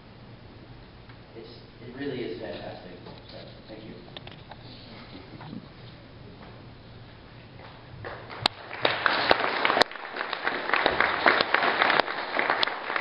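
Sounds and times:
sharp close claps: 0:07.6 - 0:13.0
audience applause: 0:08.0 - 0:13.0.

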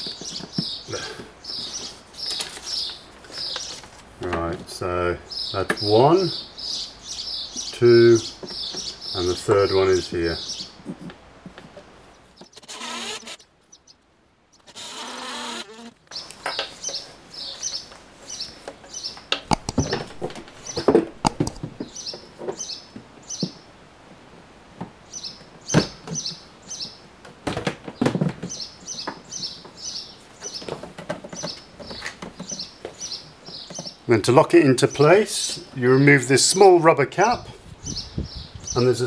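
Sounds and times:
small birds chirping: 0:00.0 - 0:23.7, 0:25.0 - 0:27.1, 0:27.9 - 0:39.0
cordless drill whirring: 0:12.5 - 0:13.4, 0:14.6 - 0:16.0
plastic housing knocks and clunks: 0:19.5 - 0:21.9.

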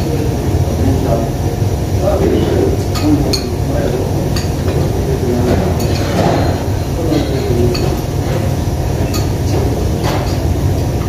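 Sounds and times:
spoons clinking against bowls: 0:02.8 - 0:03.6, 0:04.3 - 0:10.5.

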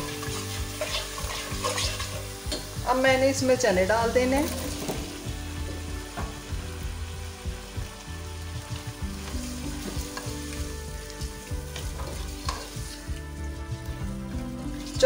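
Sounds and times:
spoon scraping a pot: 0:00.0 - 0:02.8, 0:11.8 - 0:13.0
chickpeas sizzling in oil: 0:00.0 - 0:15.0.

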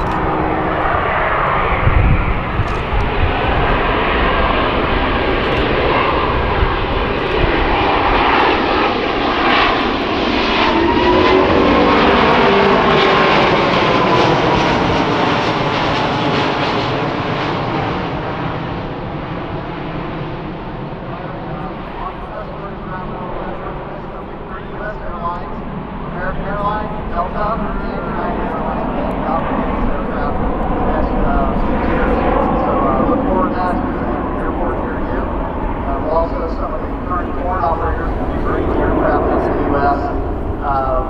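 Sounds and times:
jet plane passing overhead: 0:00.0 - 0:41.0.

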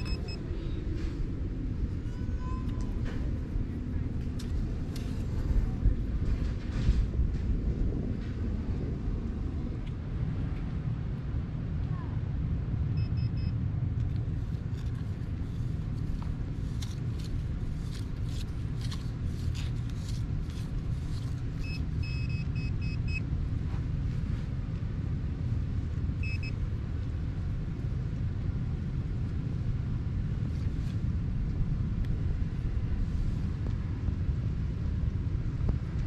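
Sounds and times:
metal detector short high beeps: 0:00.0 - 0:00.4
low wind rumble on microphone: 0:00.0 - 0:36.0.

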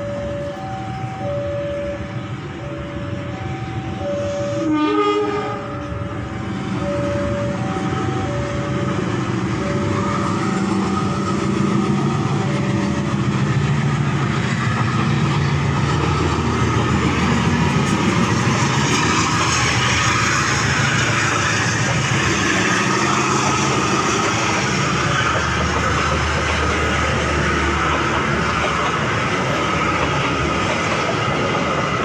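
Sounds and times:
level crossing bell ringing: 0:00.0 - 0:04.7, 0:05.5 - 0:11.4
locomotive engine rumble: 0:00.0 - 0:32.0
wheel and rail noise: 0:00.0 - 0:32.0
train horn blast: 0:04.2 - 0:06.0.

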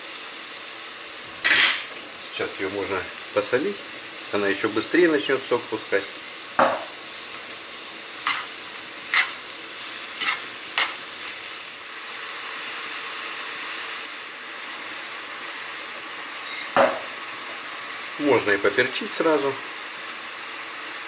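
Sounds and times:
vegetables sizzling in a pan: 0:00.0 - 0:21.0
food being stirred: 0:08.2 - 0:11.4, 0:14.6 - 0:16.8.

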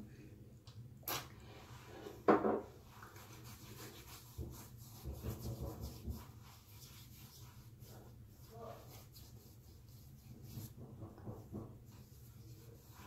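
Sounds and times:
fingertips rubbing skin: 0:02.9 - 0:10.8.

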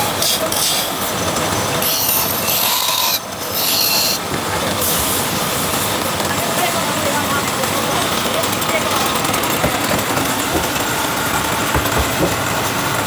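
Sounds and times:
chisel scraping wood on lathe: 0:00.0 - 0:01.1, 0:01.7 - 0:04.4
lathe running: 0:00.0 - 0:13.0.

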